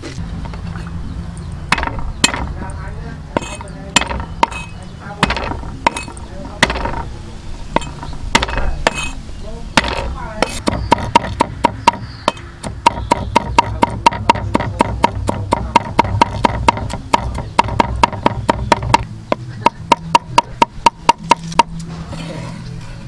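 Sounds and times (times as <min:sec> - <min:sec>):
cleaver chopping on wooden board: 0:01.7 - 0:02.6, 0:03.4 - 0:07.1, 0:07.8 - 0:09.2, 0:09.8 - 0:21.8.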